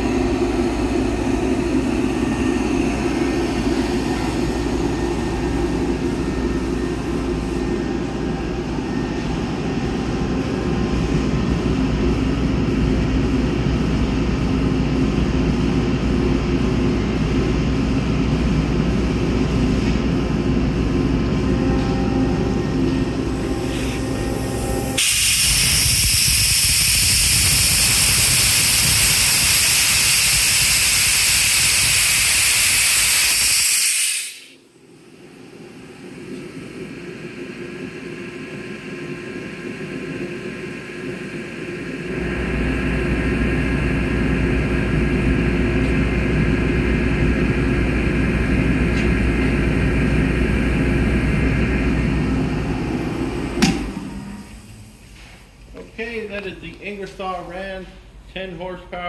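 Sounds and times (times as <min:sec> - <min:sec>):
air compressor running: 0:00.0 - 0:58.2
loud hiss of venting air: 0:23.4 - 0:35.0.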